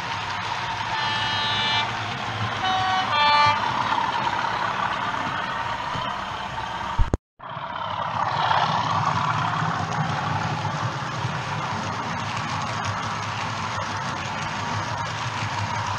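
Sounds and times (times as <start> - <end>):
model trains running on track: 0.0 - 15.9
model locomotive two-note horn: 0.9 - 2.0, 2.6 - 3.7.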